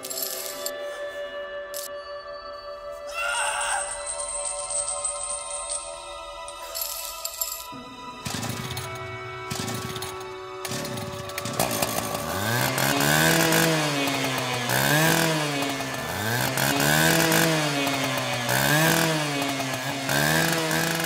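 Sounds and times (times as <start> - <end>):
small engine revving: 8.2 - 21.0.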